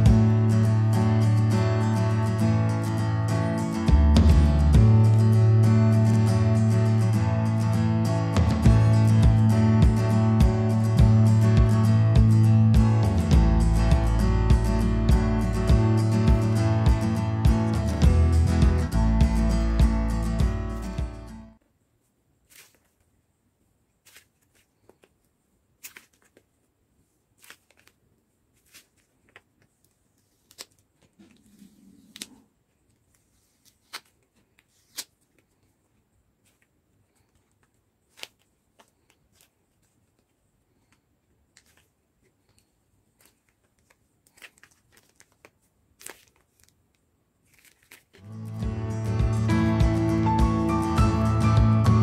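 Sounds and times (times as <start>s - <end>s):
balloons squeezed crackling: 22.4s - 23.2s, 24.0s - 48.7s
soft rubbing: 25.8s - 40.9s.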